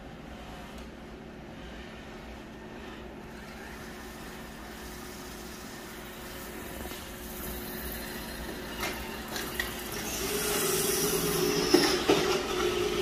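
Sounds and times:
robot vacuum motor whir: 0:03.2 - 0:13.0.

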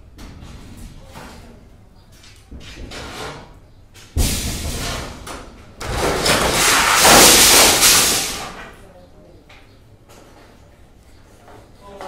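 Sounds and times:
wooden planks knocked loose: 0:05.3 - 0:08.6
crash of falling timber: 0:05.8 - 0:08.8.

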